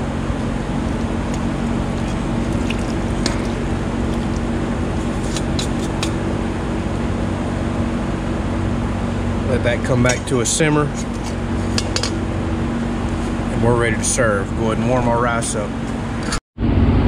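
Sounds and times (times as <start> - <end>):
steady mechanical hum: 0.0 - 17.0
marinade pouring into hot skillet: 0.8 - 6.0
metal tongs clinking: 10.9 - 12.2.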